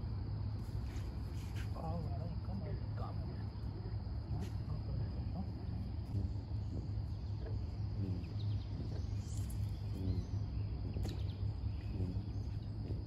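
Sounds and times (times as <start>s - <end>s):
bird calls and chirps: 5.3s - 13.0s.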